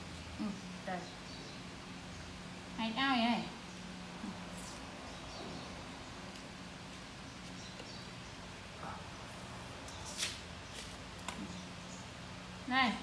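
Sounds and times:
fruit peel crackling and rustling: 9.9s - 11.6s.

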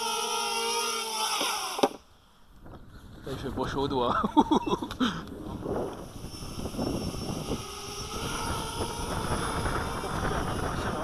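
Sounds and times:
quadcopter motors whining: 0.0s - 2.0s, 4.4s - 11.0s
wind buffeting microphone: 5.2s - 11.0s.

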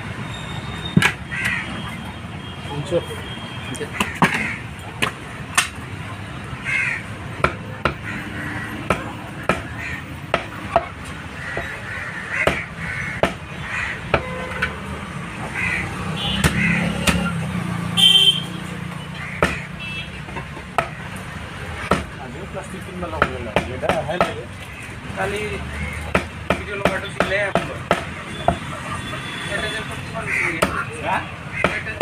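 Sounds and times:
cleaver chopping on wooden block: 7.4s - 8.1s, 8.7s - 9.7s, 10.3s - 11.0s, 12.4s - 13.4s, 16.4s - 17.3s, 19.4s - 19.7s, 20.3s - 21.0s, 21.9s - 22.1s, 23.1s - 24.4s, 26.1s - 28.6s, 31.6s - 32.0s.

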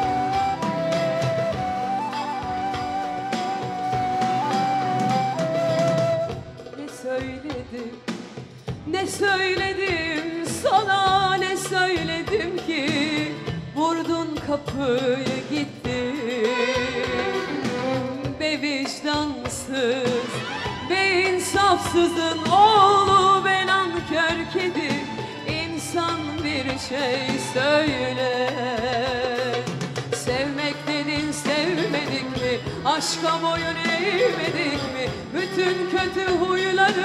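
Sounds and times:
band accompaniment: 0.0s - 37.0s
woman singing pop ballad: 6.7s - 8.2s, 8.8s - 37.0s.

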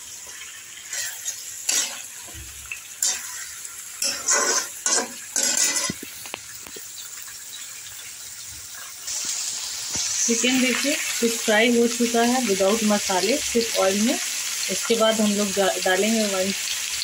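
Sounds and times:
oil sizzling: 0.0s - 17.0s
metal spatula scraping pan: 0.9s - 2.1s, 3.0s - 6.0s.

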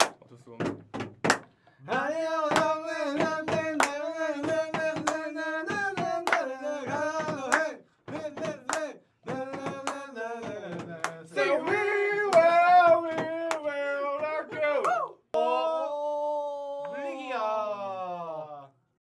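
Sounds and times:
sharp claps: 0.0s - 1.6s, 2.4s - 13.7s, 14.3s - 15.1s
voices singing held notes: 1.8s - 16.0s.

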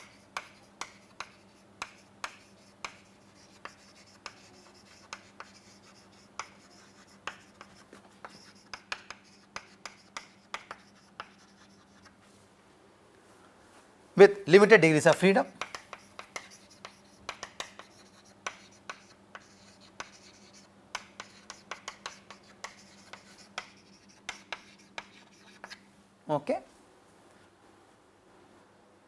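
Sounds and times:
chalk writing on blackboard: 0.0s - 12.2s, 15.2s - 25.8s.

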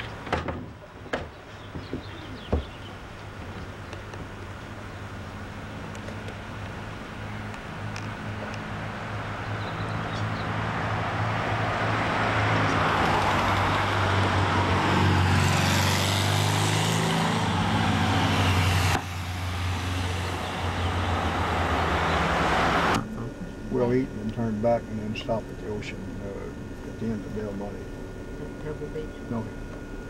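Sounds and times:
car engine hum: 0.0s - 30.0s
road noise: 0.0s - 30.0s.

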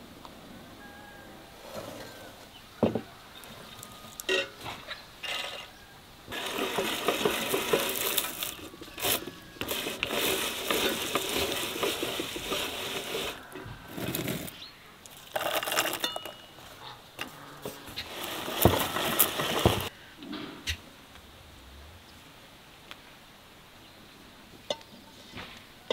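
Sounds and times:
meat grinder crunching nuts: 6.3s - 14.5s, 15.1s - 16.1s, 18.1s - 19.9s.

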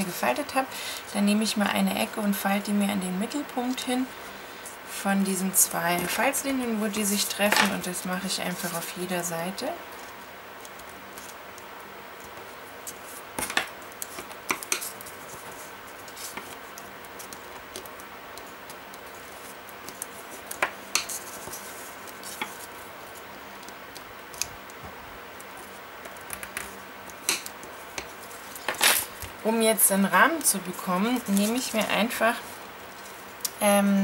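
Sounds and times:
paper rustling: 12.2s - 22.9s, 30.1s - 33.3s.

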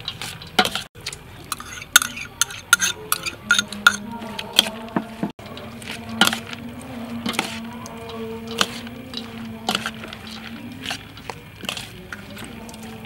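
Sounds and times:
metal spoon scraping steel bowl: 0.0s - 13.0s.

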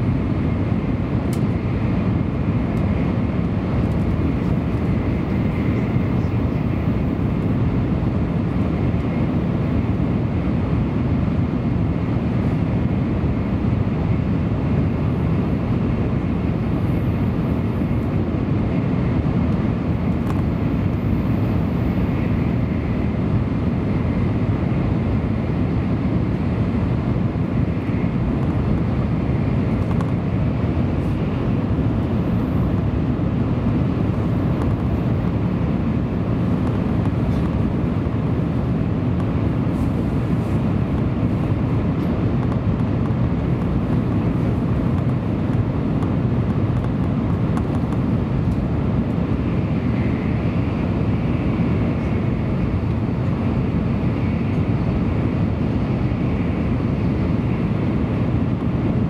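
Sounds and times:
faint high whine: 0.0s - 59.0s
train rumble from inside car: 0.0s - 59.0s.

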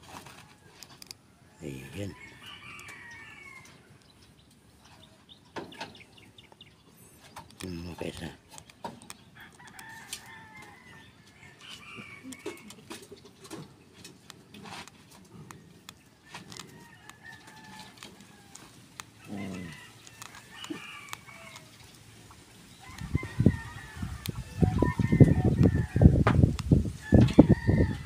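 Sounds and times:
chickens clucking: 11.2s - 28.0s.

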